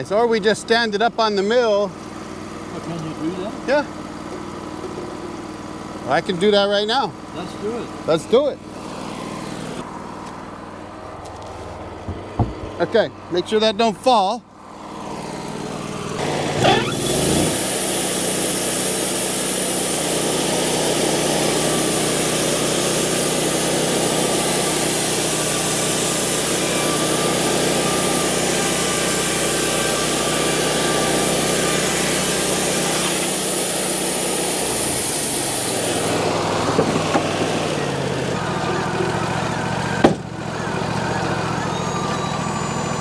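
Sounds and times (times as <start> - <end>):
sawmill engine hum: 0.0 - 43.0
band saw hissing through wood: 16.2 - 37.8.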